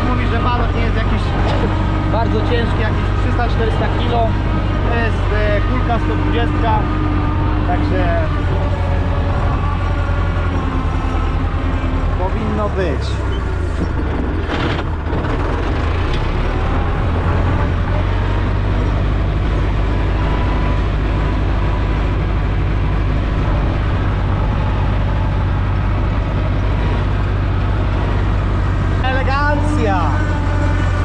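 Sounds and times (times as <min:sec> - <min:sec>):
tractor diesel engine running: 0:00.0 - 0:31.0.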